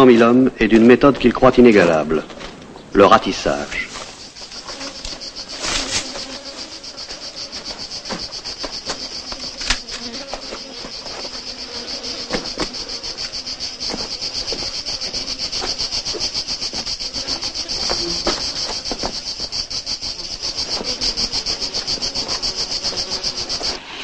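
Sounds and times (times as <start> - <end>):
cicadas buzzing: 2.9 - 24.0.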